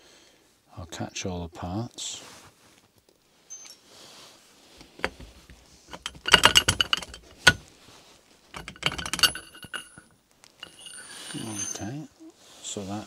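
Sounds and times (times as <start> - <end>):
steel parts clinking and rattling: 4.8 - 7.7, 8.5 - 12.1.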